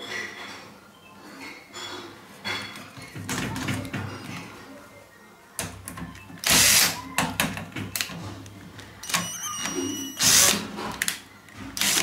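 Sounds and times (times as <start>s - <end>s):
cordless drill driving screw: 6.4s - 7.0s, 10.2s - 10.7s, 11.8s - 12.0s.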